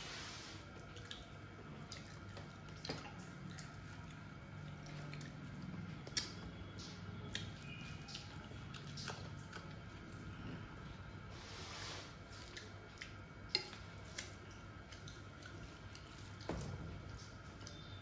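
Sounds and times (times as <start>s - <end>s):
steady low hum: 0.0s - 18.0s
person chewing with wet mouth sounds: 0.5s - 18.0s.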